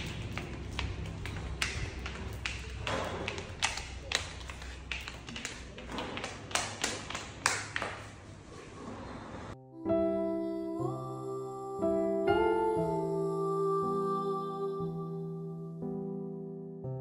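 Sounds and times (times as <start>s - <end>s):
toddler footsteps on tiled floor: 0.0s - 8.9s.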